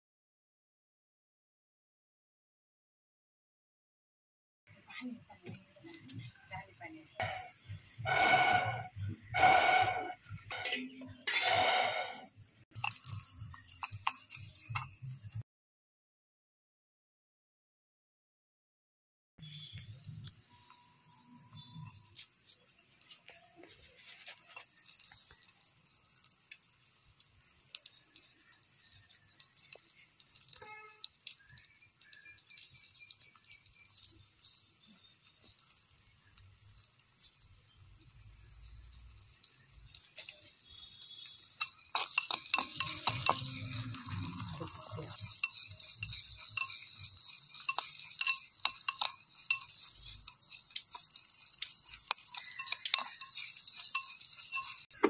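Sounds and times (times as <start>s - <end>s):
onions sizzling in oil: 4.7s - 15.4s, 19.4s - 55.0s
spoon scraping clay pot: 7.2s - 15.0s, 40.1s - 55.0s.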